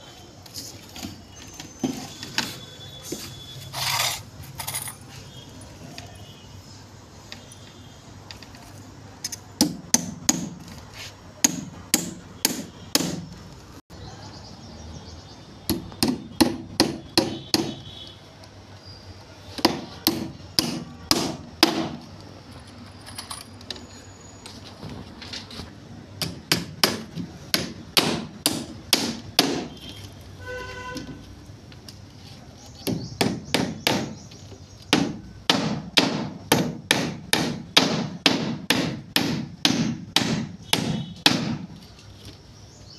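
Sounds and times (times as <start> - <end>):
hammer driving nails into wood: 9.3 - 10.6, 26.2 - 29.7, 32.8 - 34.2, 34.9 - 41.7.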